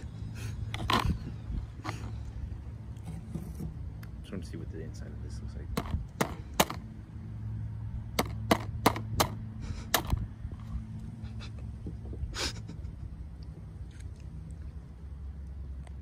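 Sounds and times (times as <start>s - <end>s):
hammer knocking crab shell: 5.8s - 6.8s.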